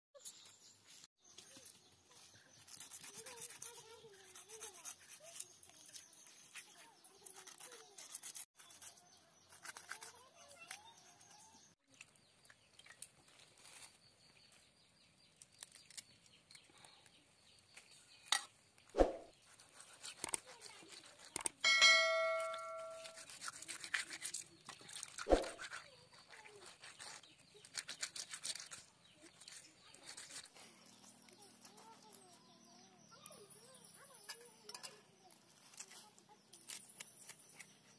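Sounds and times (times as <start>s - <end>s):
knife scraping fish scales: 2.3s - 11.4s, 19.4s - 21.6s, 22.4s - 32.2s
ringing metal tone: 21.6s - 23.2s
fish scraped on stone: 23.0s - 30.6s.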